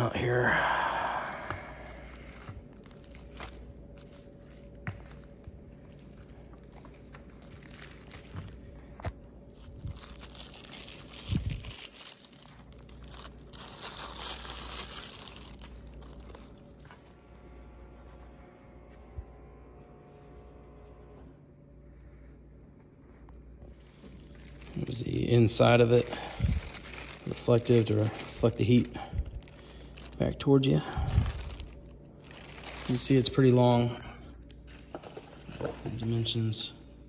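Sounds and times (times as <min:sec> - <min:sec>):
plastic sheet rustling and crackling: 0:01.2 - 0:17.2, 0:23.6 - 0:36.5.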